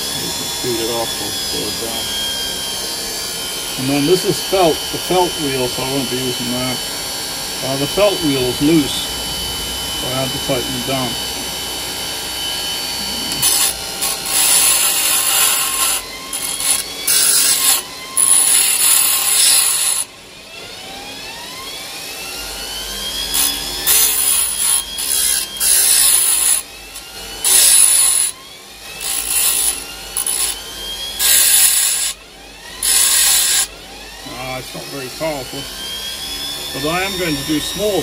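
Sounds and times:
grinding wheel rasping on metal: 0.0 - 2.3, 7.6 - 9.1, 9.8 - 11.6, 12.2 - 20.1, 23.2 - 34.3
grinder motor whine: 0.0 - 38.0.

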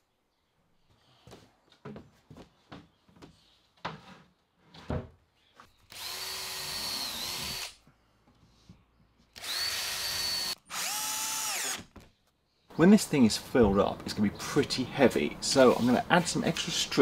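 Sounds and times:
cordless drill running: 5.9 - 7.8, 9.4 - 11.8.

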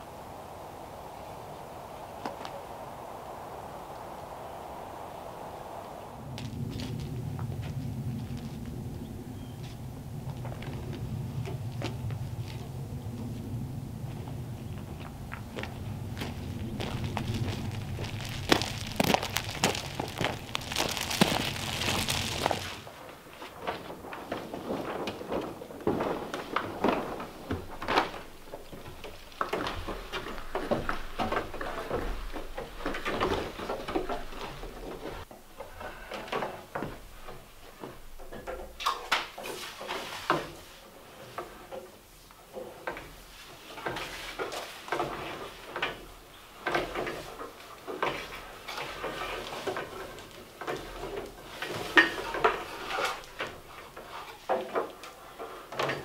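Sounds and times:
footsteps on timber: 14.2 - 22.8
cable dragged over wooden joists: 15.8 - 22.9, 42.7 - 56.0.

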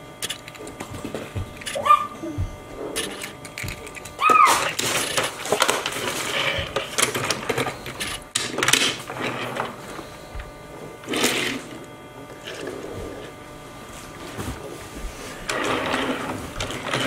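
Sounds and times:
toy cars clattering on tabletop: 3.0 - 9.8.

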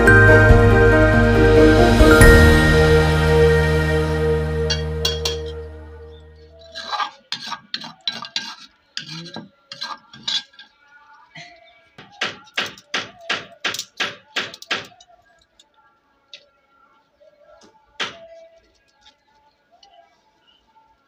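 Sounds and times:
background music: 0.0 - 6.7.

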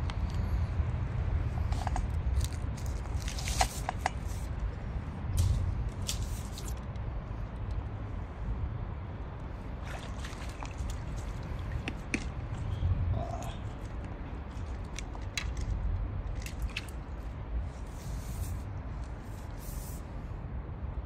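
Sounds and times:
water splashing and dripping: 9.7 - 12.8.

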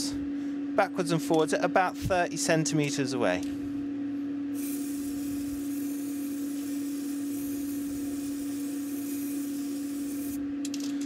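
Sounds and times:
low hum: 0.0 - 11.0
aerosol can spraying: 4.6 - 10.4.

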